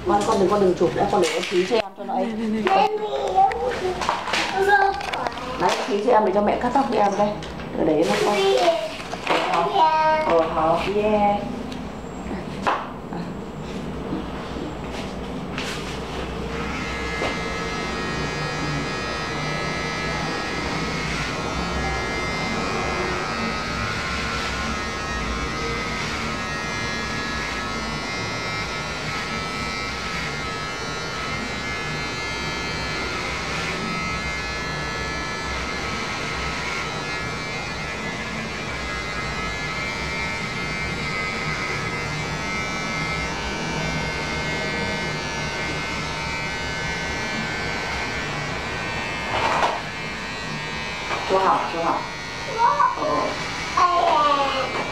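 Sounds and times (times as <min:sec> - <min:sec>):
electric hair clipper buzzing: 0:00.0 - 0:11.8, 0:15.0 - 0:54.9.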